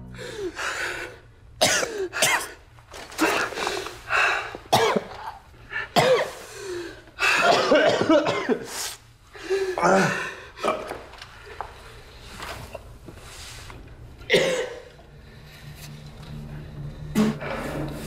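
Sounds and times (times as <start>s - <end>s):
man coughing and choking: 1.6s - 2.6s, 4.7s - 6.4s, 7.2s - 8.7s, 14.3s - 15.0s.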